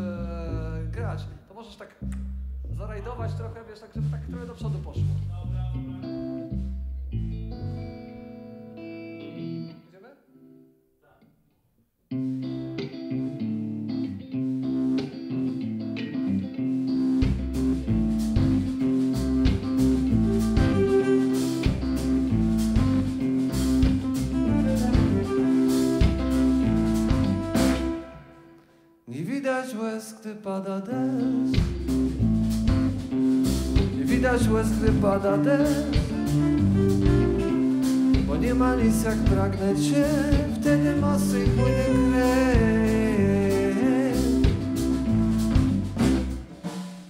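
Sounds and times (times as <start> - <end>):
bass guitar: 0.0 - 9.8, 12.1 - 28.5, 31.0 - 46.8
electric guitar: 5.8 - 10.7, 12.1 - 28.9, 30.9 - 46.6
drums: 12.2 - 28.3, 31.5 - 47.0
violin playing: 20.1 - 23.0, 24.1 - 28.7.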